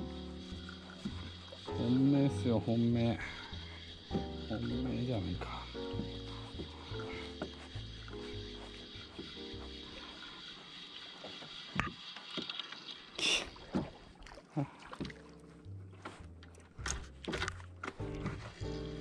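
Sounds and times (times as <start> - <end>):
background music: 0.0 - 10.4, 15.1 - 19.0
water splashing against a boat: 0.0 - 19.0.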